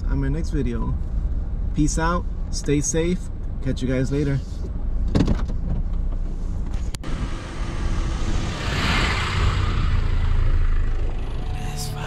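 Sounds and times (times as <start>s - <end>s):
tyre and road noise: 4.2s - 12.0s
car engine running: 6.4s - 12.0s.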